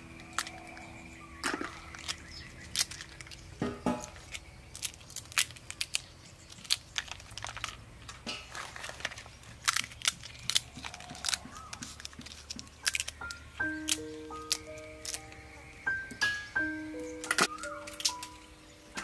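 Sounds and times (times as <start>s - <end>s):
pod shells cracking: 0.0s - 19.0s.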